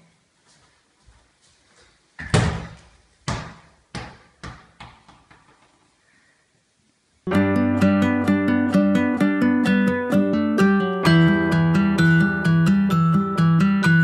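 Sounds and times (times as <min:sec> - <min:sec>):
ball bouncing on hardwood floor: 0:02.2 - 0:05.6
acoustic guitar music: 0:07.3 - 0:14.0.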